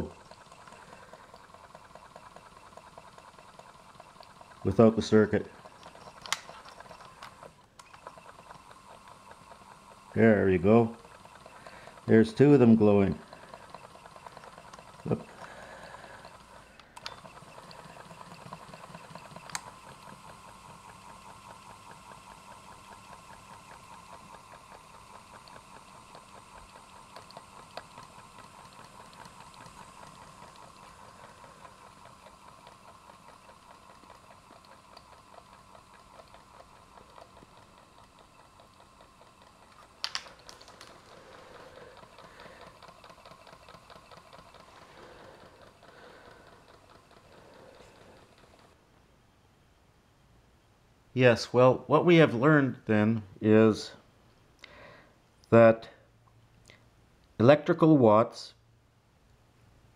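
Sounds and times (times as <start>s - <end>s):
sharp clicks: 0.0s - 10.0s, 11.0s - 21.1s, 22.3s - 48.8s
small motor whirring buzz: 0.0s - 48.9s.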